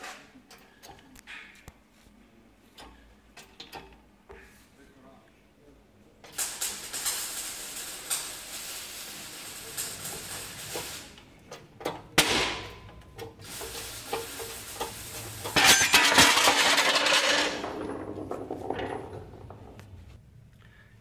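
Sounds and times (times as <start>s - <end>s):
rushing hiss: 6.4s - 11.2s, 13.4s - 15.6s.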